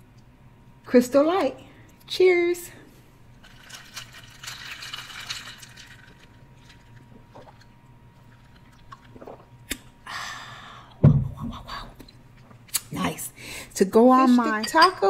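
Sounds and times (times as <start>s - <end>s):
low thump: 11.0s - 11.4s.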